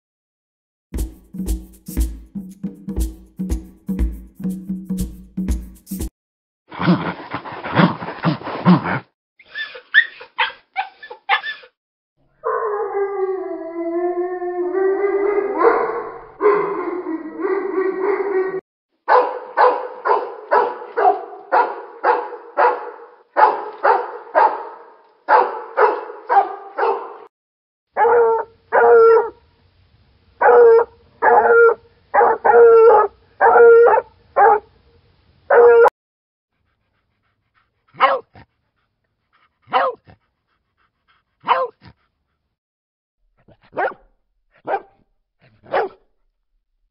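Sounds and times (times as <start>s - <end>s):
dog barking: 9.6s - 11.8s, 15.6s - 16.7s, 19.1s - 27.3s, 28.0s - 29.4s, 30.4s - 34.7s, 35.5s - 35.9s, 38.0s - 38.4s, 39.7s - 40.1s, 41.4s - 41.9s, 43.5s - 45.0s, 45.6s - 46.1s
dog barking quickly: 19.1s - 27.2s, 30.4s - 34.6s, 38.0s - 38.4s, 39.7s - 40.1s, 41.4s - 41.8s, 43.6s - 44.0s, 44.6s - 44.9s, 45.6s - 46.0s
dog giving long barks: 19.1s - 27.3s, 38.0s - 38.4s, 39.7s - 40.1s, 41.4s - 41.8s, 43.6s - 44.0s, 45.6s - 46.0s.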